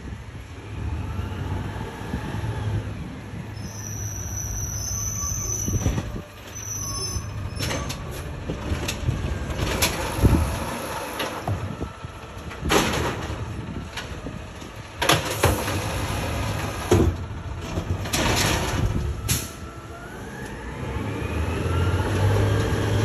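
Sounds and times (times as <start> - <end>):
garbage truck diesel engine running: 3.0 - 20.8.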